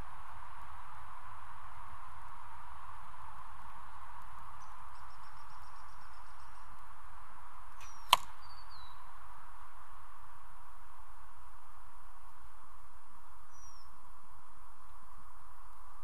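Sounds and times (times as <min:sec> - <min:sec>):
steady hiss: 0:00.0 - 0:16.0
arrow shot thwack: 0:07.8 - 0:08.4
high falling bird chirps: 0:07.8 - 0:09.0.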